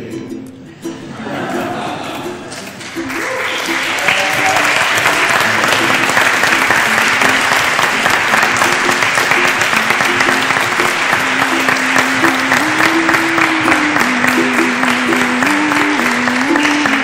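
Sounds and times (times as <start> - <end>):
guests applauding: 1.4 - 17.0
stepping melody music: 4.8 - 17.0.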